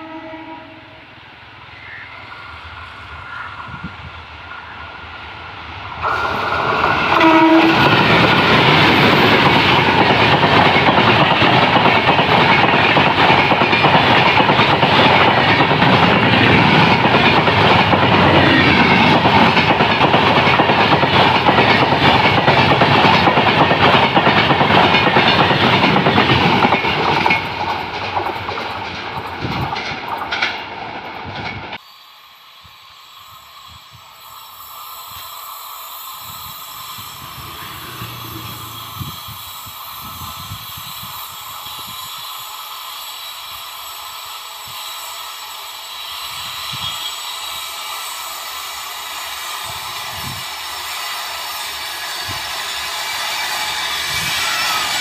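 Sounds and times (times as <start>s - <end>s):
train horn toot: 0.0s - 1.1s, 6.0s - 8.0s, 37.3s - 39.5s
train wheels clattering over rails: 6.1s - 31.8s.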